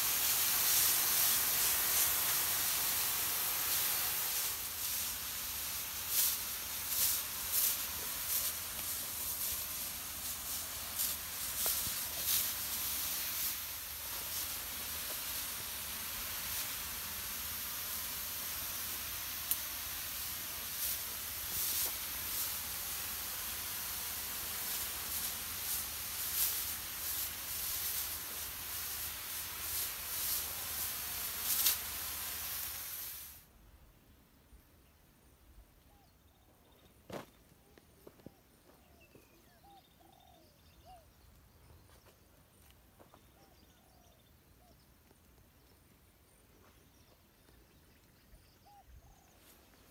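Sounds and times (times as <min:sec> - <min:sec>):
spray wand hissing: 0:00.0 - 0:33.4.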